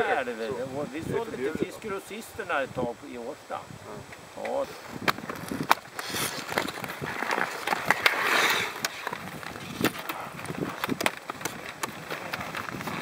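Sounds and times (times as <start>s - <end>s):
skate blades scraping on ice: 4.8s - 13.0s.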